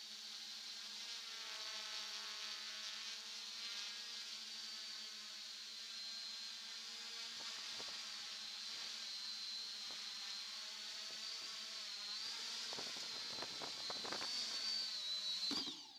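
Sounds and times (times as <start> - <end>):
drone propellers buzzing: 7.4 - 15.9.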